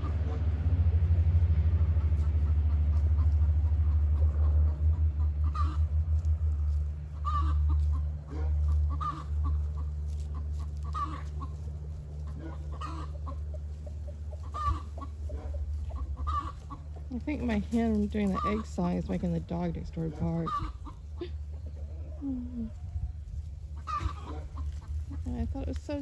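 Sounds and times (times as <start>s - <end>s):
low steady rumble: 0.0s - 26.0s
hen cackling: 1.9s - 6.2s, 7.1s - 17.1s, 18.2s - 23.0s, 23.7s - 25.3s.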